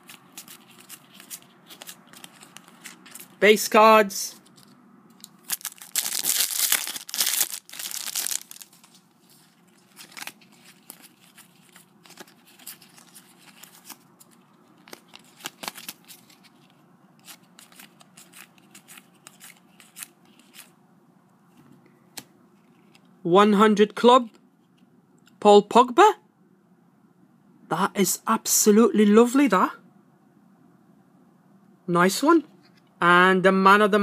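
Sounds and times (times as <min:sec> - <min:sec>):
cards rustling and clicking: 0:00.0 - 0:03.4, 0:04.4 - 0:20.7, 0:21.5 - 0:23.1
foil packet tearing: 0:05.4 - 0:09.0, 0:09.8 - 0:16.4.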